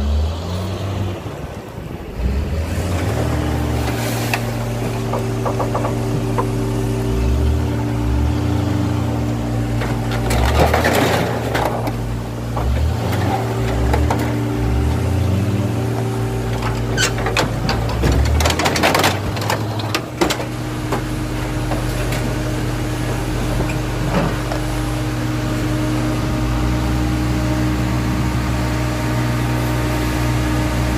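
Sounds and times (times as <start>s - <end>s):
diesel engine running: 0.0s - 30.9s
sheet metal crunching and banging: 3.8s - 8.1s, 9.4s - 24.7s.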